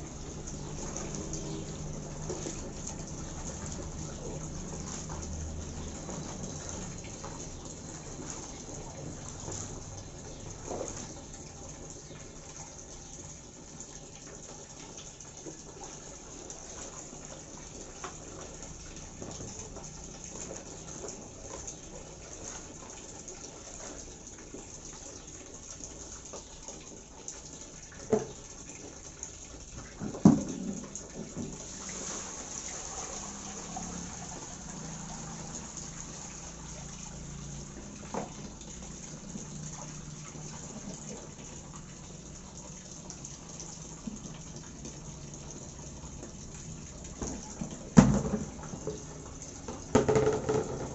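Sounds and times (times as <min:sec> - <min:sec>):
water sloshing and splashing: 0:00.0 - 0:11.6, 0:29.6 - 0:45.0
water pouring out: 0:29.8 - 0:50.9
plastic tub knocks: 0:48.0 - 0:48.6, 0:49.8 - 0:50.9.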